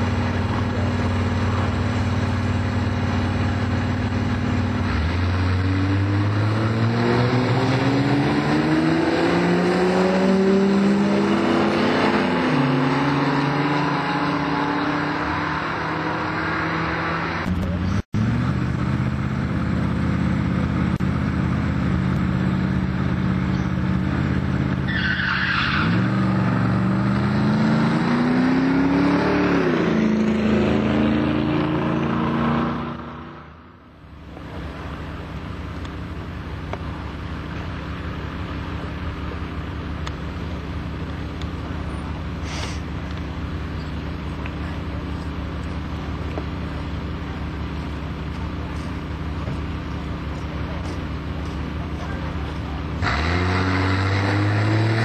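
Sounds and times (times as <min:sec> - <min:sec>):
drag car engine revving: 0:00.0 - 0:55.0
tire squeal: 0:24.7 - 0:26.6.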